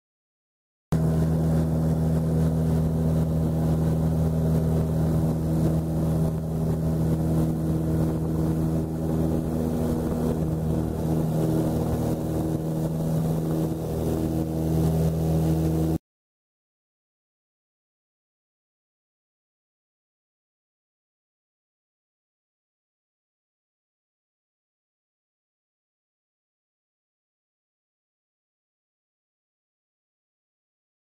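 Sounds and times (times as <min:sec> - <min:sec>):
aircraft engines droning in cabin: 0:01.0 - 0:16.0.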